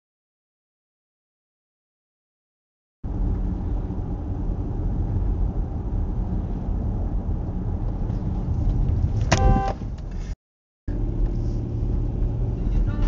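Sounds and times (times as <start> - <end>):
car road and engine rumble: 3.0 - 13.0
car horn blast: 9.3 - 9.8.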